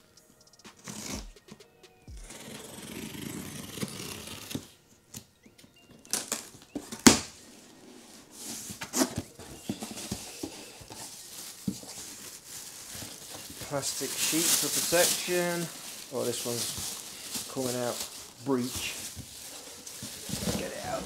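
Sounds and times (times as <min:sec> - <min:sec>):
packing tape scraped and split: 0:00.8 - 0:01.2, 0:02.3 - 0:04.7, 0:08.8 - 0:21.0
cardboard scraping: 0:02.2 - 0:04.7, 0:06.2 - 0:21.0
plastic wrap rustling: 0:06.0 - 0:21.0.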